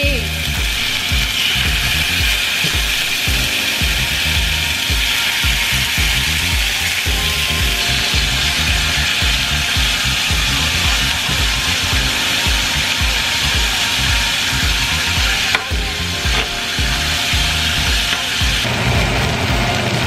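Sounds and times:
background music with bass beat: 0.0 - 19.8
steak sizzling in a skillet: 0.0 - 20.0.

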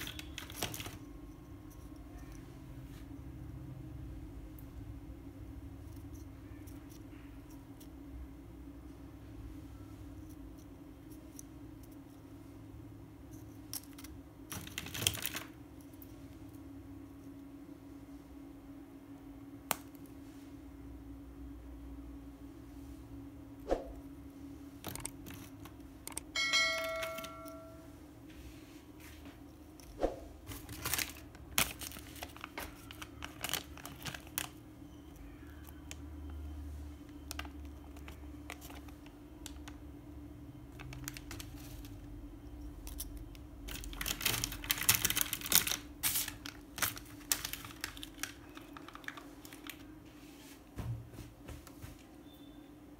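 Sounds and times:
plastic wrapper crinkling: 0.0 - 1.2, 13.8 - 15.6, 30.4 - 34.7, 37.1 - 39.8, 40.7 - 42.1, 43.0 - 50.0
short ringing tone: 26.4 - 28.0.

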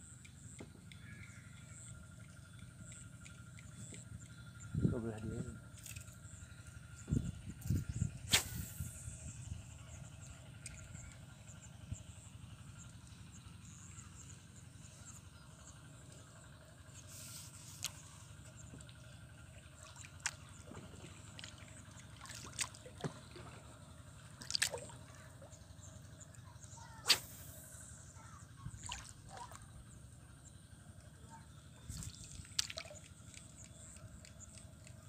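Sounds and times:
low background rumble: 0.0 - 35.0
water splashes and drips: 19.6 - 23.6, 24.4 - 25.5, 28.7 - 29.6, 31.9 - 35.0.

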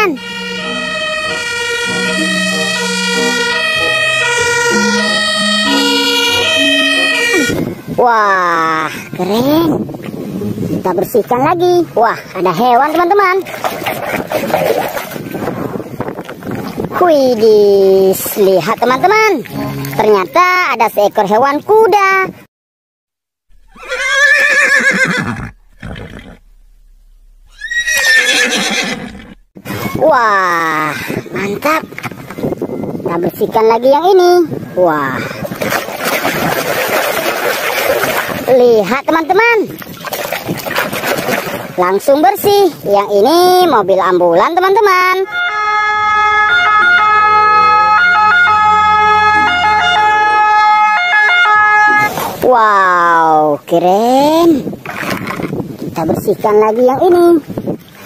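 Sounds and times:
two-tone fire engine siren: 0.0 - 8.0, 45.3 - 52.2
horse whinnying: 23.5 - 26.5, 27.5 - 29.4.

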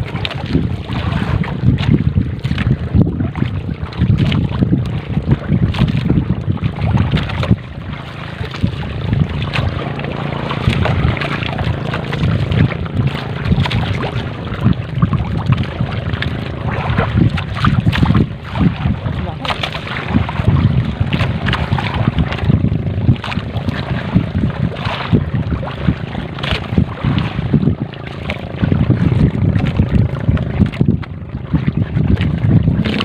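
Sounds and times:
water sloshing along hull: 0.0 - 33.0
wind buffeting microphone: 0.0 - 33.0.

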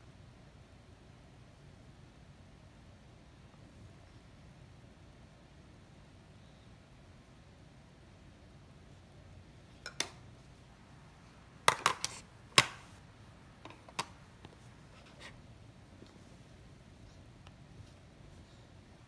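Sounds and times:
plastic cases clicking and clacking: 11.7 - 12.8.

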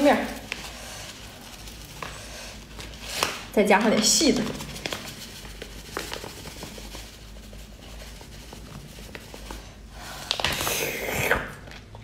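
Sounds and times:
plastic packet rustling: 0.0 - 9.6.

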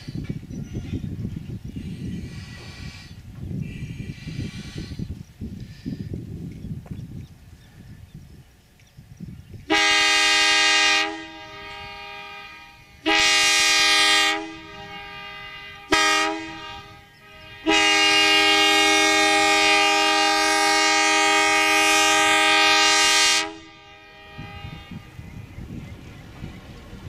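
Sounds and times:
train horn blasts: 9.7 - 25.8.

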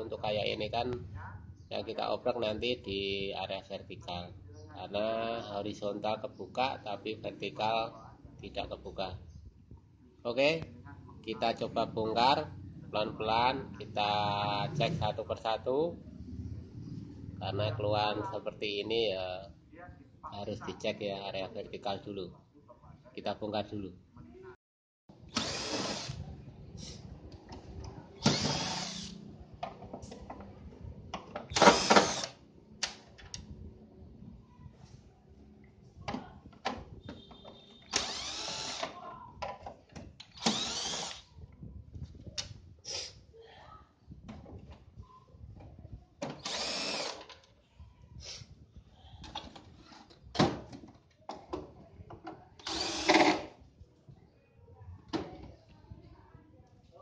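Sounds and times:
cordless drill running: 25.3 - 26.2, 28.2 - 29.2, 31.5 - 32.4, 37.9 - 38.9, 40.3 - 41.3, 46.4 - 47.2, 52.6 - 53.4.

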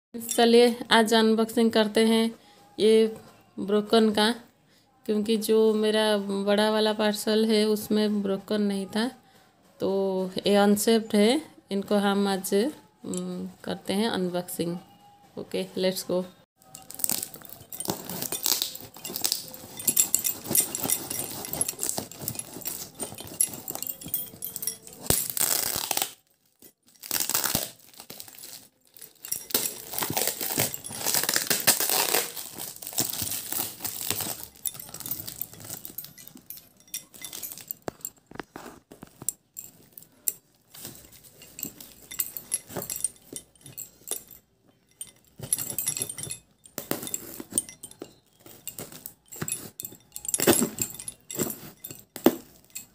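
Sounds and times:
plastic crinkling: 16.6 - 52.9
packing tape tearing: 25.0 - 26.2, 26.9 - 35.0.

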